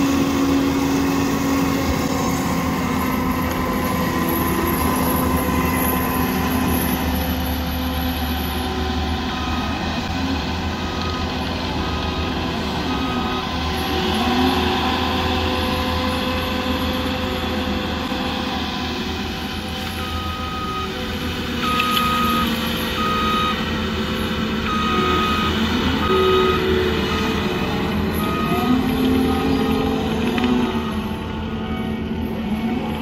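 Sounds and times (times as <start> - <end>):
diesel engine running: 0.0 - 33.0
reversing alarm beeps: 9.2 - 9.8, 10.9 - 13.9, 20.0 - 21.0, 21.6 - 23.7, 24.6 - 32.0.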